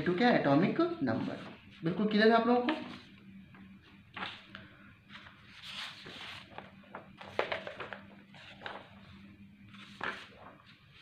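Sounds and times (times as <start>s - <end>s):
faint steady hum: 0.0s - 11.0s
paper rustling and shuffling: 1.1s - 2.0s, 4.1s - 11.0s.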